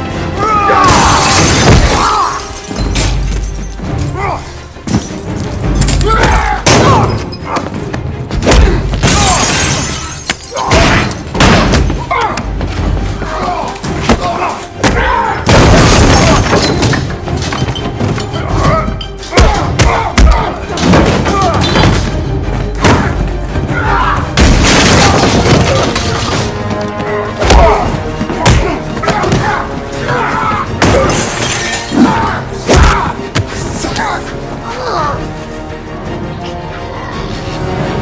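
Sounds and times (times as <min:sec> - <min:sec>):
dramatic score music: 0:00.0 - 0:38.0
crashes with breaking glass: 0:00.9 - 0:03.4, 0:09.0 - 0:10.9
men grunting: 0:31.9 - 0:35.4.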